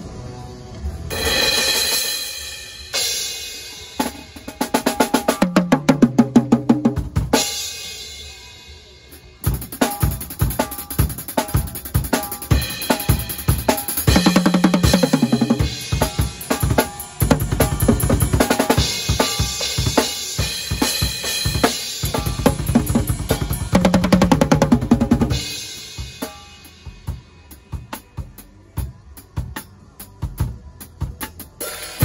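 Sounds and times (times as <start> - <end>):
cymbal crash: 1.1 - 4.3
drum beat on bass drum and snare: 3.0 - 7.9, 9.4 - 32.0
fast tom roll: 9.6 - 26.3.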